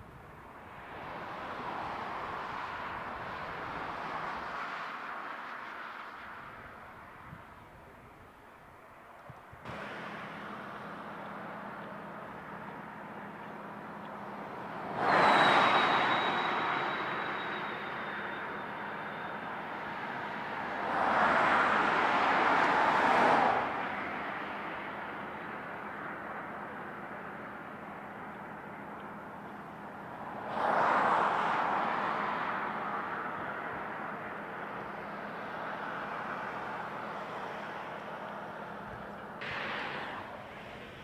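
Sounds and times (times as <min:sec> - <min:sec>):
steady road hum: 0:00.0 - 0:41.0
vehicles passing close by: 0:00.0 - 0:41.0.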